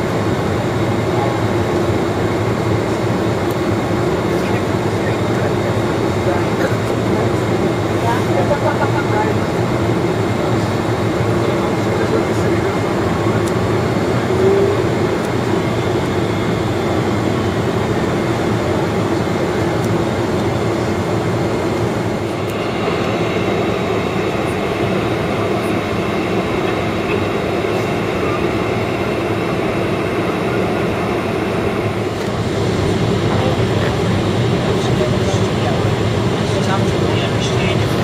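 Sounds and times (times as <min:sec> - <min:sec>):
airplane cabin engine and airflow noise: 0:00.0 - 0:38.0.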